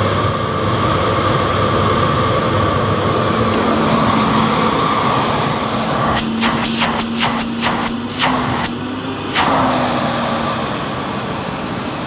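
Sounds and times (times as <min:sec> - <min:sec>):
low hum: 0:00.0 - 0:11.8
vacuum cleaner running: 0:02.8 - 0:12.0.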